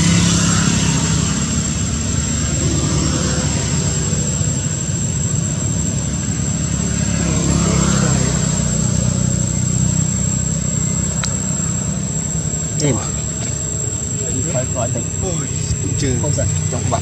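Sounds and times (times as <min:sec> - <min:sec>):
low engine rumble: 0:00.0 - 0:17.0
thin high steady tone: 0:00.1 - 0:17.0.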